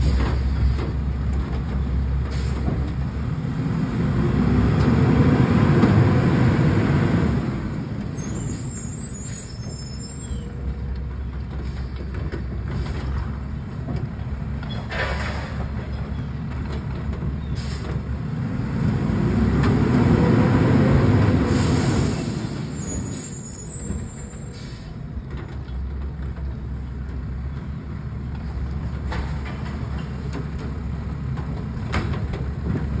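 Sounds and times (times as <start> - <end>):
garbage truck diesel engine revving: 17.6 - 22.7.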